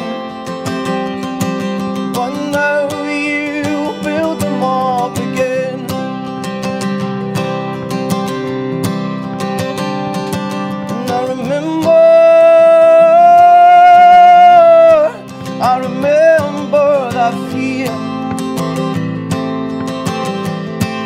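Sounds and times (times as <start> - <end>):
man singing: 0.0 - 6.2, 10.7 - 18.8
strummed acoustic guitar: 0.0 - 21.0.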